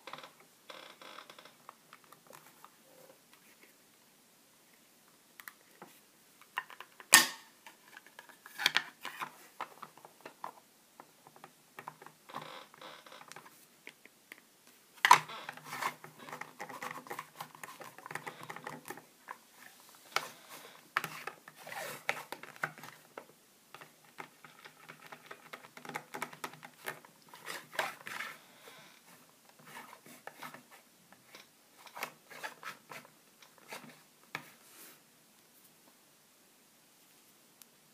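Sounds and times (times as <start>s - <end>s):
plastic scraping and rubbing: 15.0s - 28.4s, 29.0s - 34.6s
plastic clicks and knocks: 22.1s - 27.1s.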